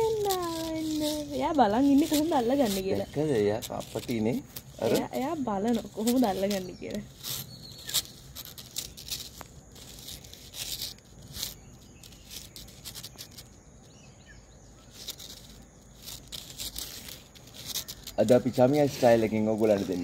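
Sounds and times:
kittens scratching a dry stalk: 0.0s - 20.0s.

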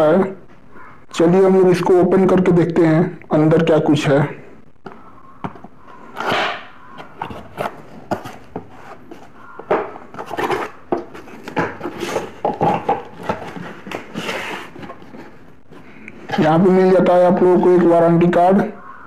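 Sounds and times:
cardboard box rustling: 7.0s - 16.5s.

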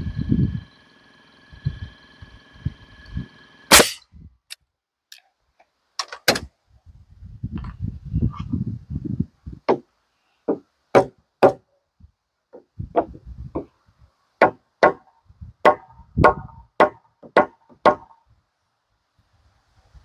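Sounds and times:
hammering spikes into wood: 10.5s - 11.6s, 14.4s - 18.2s.

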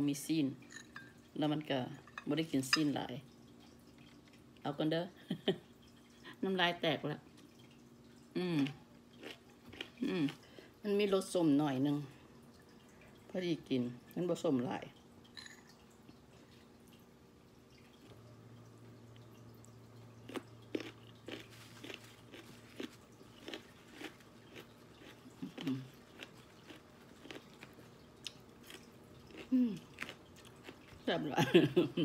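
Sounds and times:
person chewing crunchy fruit: 8.5s - 10.5s, 20.2s - 31.1s.

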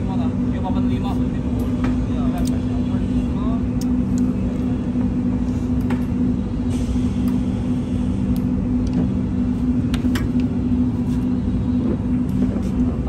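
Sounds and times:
low hum with held tones: 0.0s - 13.0s.

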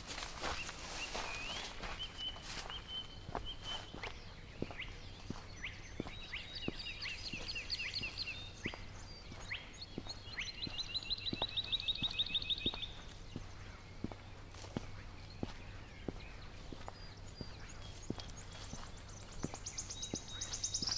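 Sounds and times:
footsteps on dirt track: 0.0s - 20.9s
songbird singing rapid high notes: 14.9s - 20.9s.

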